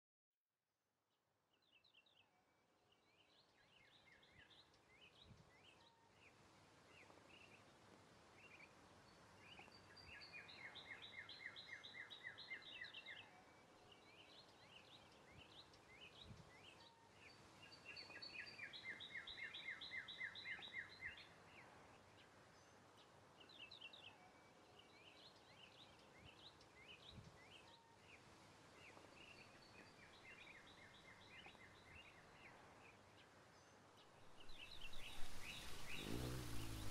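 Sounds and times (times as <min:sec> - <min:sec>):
faint songbirds chirping: 0:01.1 - 0:36.9
rapid bird trills: 0:34.3 - 0:36.9.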